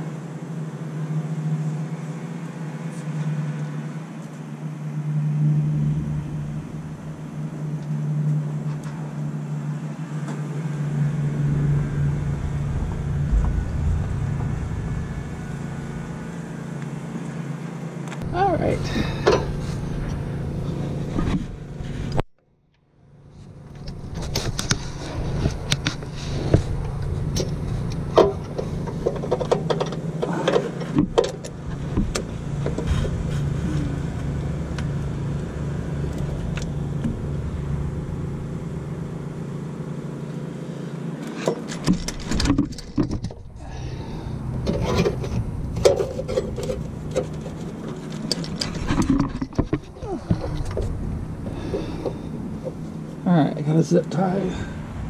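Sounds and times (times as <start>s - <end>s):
steady low hum: 0.0s - 55.0s
metal tools clinking and scraping: 44.7s - 49.5s.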